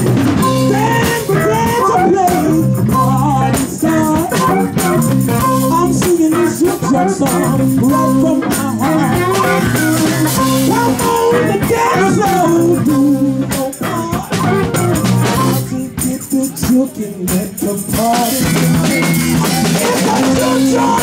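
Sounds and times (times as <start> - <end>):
electric blues band playing: 0.0 - 21.0
tambourine shaken: 0.0 - 21.0
woman singing: 0.5 - 14.8, 19.4 - 21.0.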